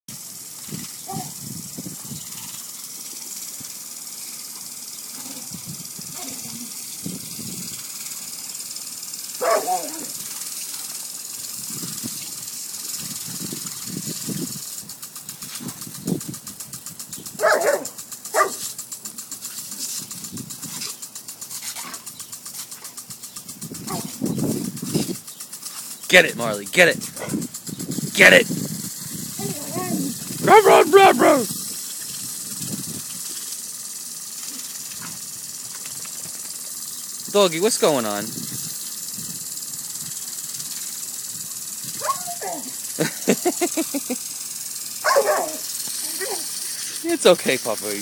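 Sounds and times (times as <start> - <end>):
lawn sprinkler spraying water: 0.1 - 48.0
dog barking: 9.4 - 10.2, 17.4 - 18.7, 30.4 - 31.5, 42.0 - 42.7, 45.0 - 45.6.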